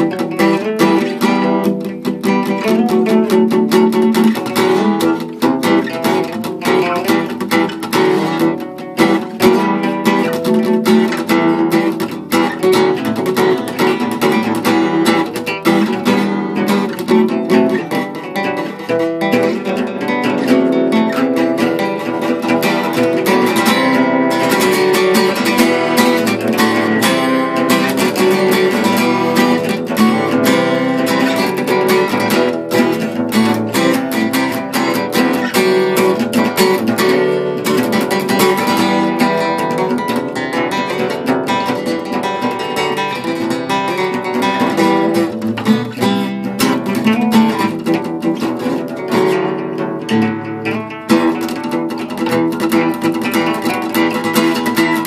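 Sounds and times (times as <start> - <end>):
acoustic guitar picking: 0.0 - 55.0.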